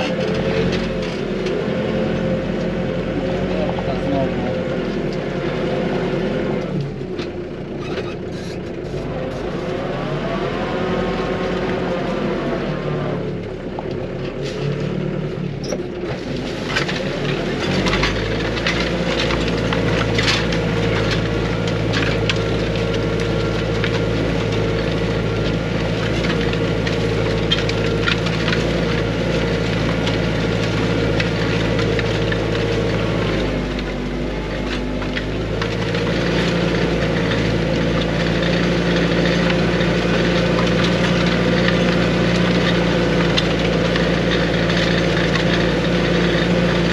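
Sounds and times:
cracks and clatters: 0:00.0 - 0:05.3, 0:13.3 - 0:15.0, 0:15.6 - 0:46.9
tractor engine under load: 0:00.0 - 0:46.9.

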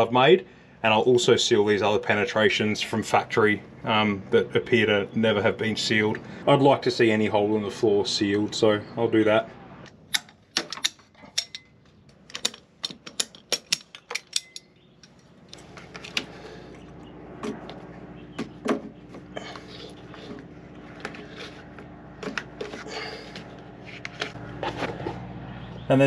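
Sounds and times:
steady low hum: 0:11.3 - 0:26.0.

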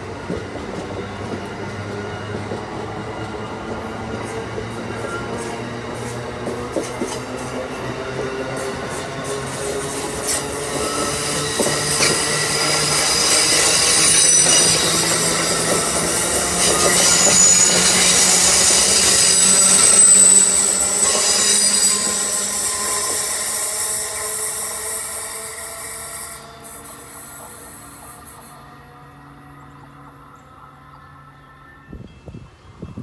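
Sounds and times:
train wheels rushing on rail: 0:00.0 - 0:30.1
high-pitched wheel squeal: 0:07.0 - 0:29.7.

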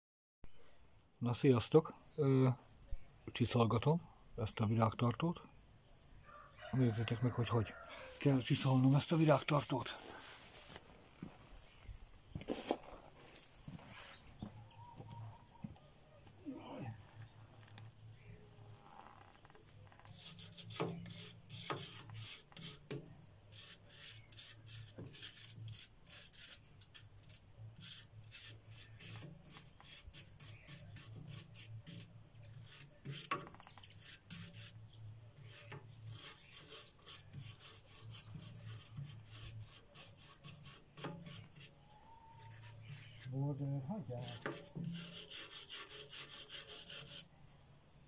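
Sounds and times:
sanding metal back and forth: 0:08.2 - 0:10.0, 0:20.0 - 0:34.8, 0:35.4 - 0:41.8, 0:42.4 - 0:47.3.

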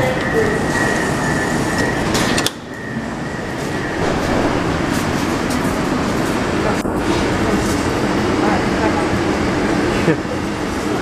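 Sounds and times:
train car noise with high tone: 0:00.0 - 0:11.0
train doors clunking shut: 0:03.9 - 0:07.4.

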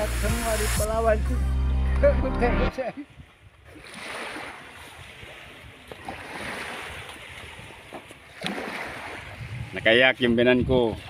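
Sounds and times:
small waves washing onto sand: 0:02.8 - 0:11.0
wind on the microphone: 0:04.8 - 0:08.2, 0:08.9 - 0:11.0.

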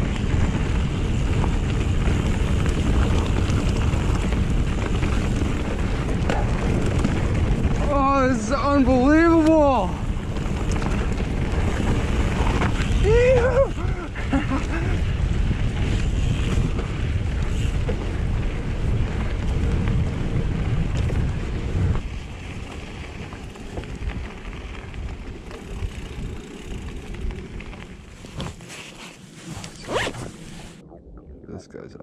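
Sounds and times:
wind buffeting microphone: 0:00.0 - 0:28.6
bike tyres rattling over dirt: 0:00.0 - 0:30.8.

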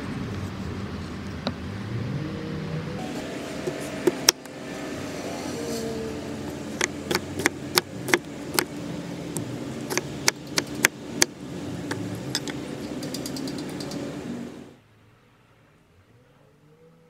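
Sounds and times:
cleaver chopping on wooden board: 0:06.5 - 0:08.8, 0:09.4 - 0:12.6.

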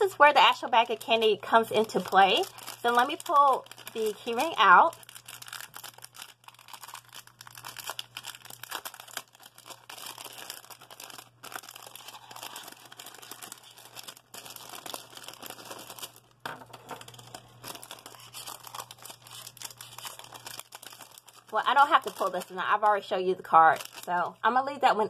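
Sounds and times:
plastic bag crinkling: 0:00.1 - 0:24.4.

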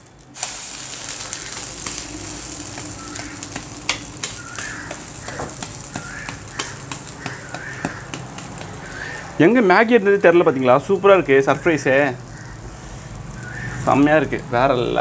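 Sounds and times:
omelette sizzling in oil: 0:00.0 - 0:15.0
steel spatula scraping griddle: 0:00.4 - 0:09.2.

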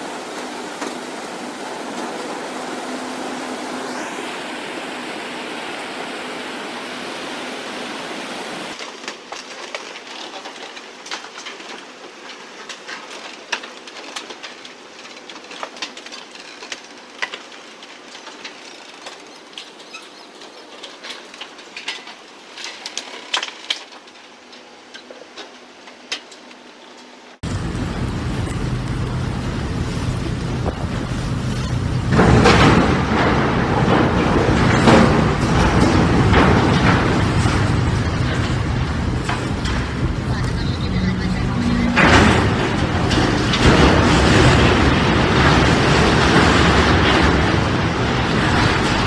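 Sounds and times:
churning propeller wash: 0:00.0 - 0:08.8, 0:27.4 - 0:49.0
boats cracking and snapping: 0:08.7 - 0:26.5, 0:27.4 - 0:49.0.

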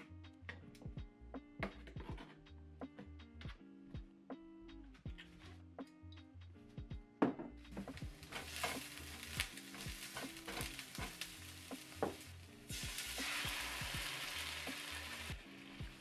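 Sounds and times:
soft background music: 0:00.0 - 0:16.0
food sizzling in hot oil: 0:07.9 - 0:16.0.

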